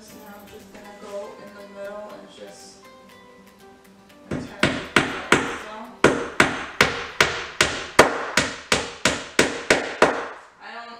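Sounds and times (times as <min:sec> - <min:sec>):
hammer nailing wooden boards: 0:04.3 - 0:10.4.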